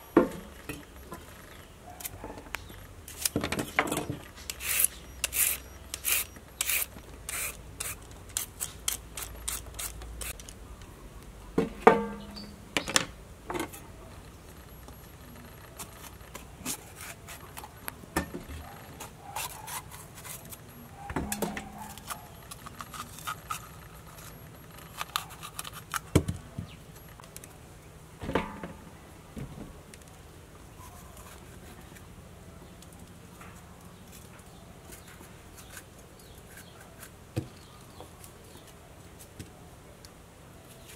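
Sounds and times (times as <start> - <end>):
peeler scraping carrot: 3.1 - 10.6, 15.7 - 17.9, 18.6 - 26.1, 34.1 - 37.2
knife cutting pepper: 4.5 - 10.4.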